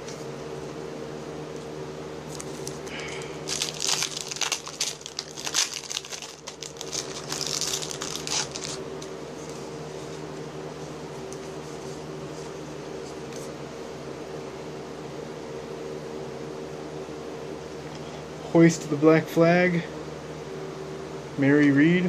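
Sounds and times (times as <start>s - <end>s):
card pack wrapper crinkling: 2.3s - 8.8s.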